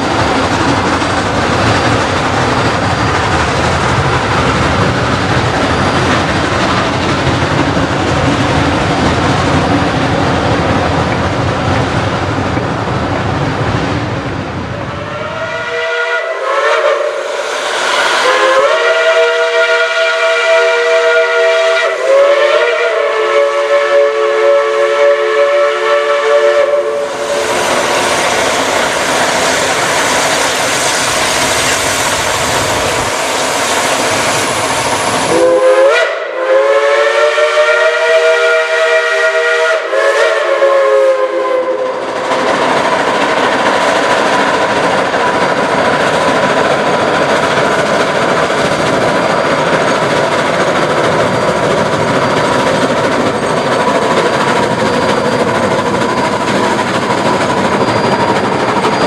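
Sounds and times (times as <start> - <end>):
locomotive steam hissing: 14.8 - 59.0
chime steam whistle blasts: 14.9 - 31.8, 33.1 - 42.1.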